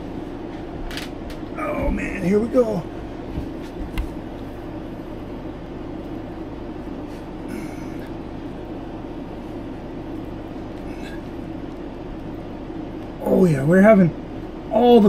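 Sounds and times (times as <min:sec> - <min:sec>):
low machine hum: 0:00.0 - 0:15.0.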